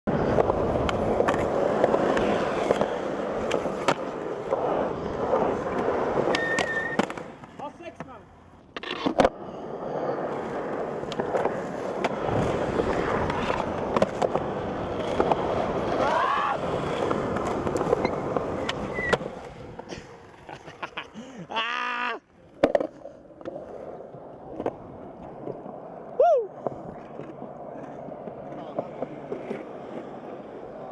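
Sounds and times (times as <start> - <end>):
skateboard wheels rolling on concrete: 0.1 - 30.9
skateboard clacks and impacts: 0.2 - 4.6, 11.0 - 16.2
skateboard clicks: 0.2 - 9.4, 10.7 - 20.7.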